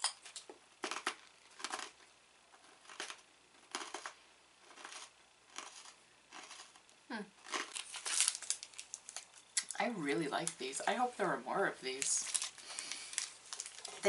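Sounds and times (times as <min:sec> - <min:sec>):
cookie crunching while chewed: 0:00.3 - 0:09.8, 0:11.9 - 0:14.0.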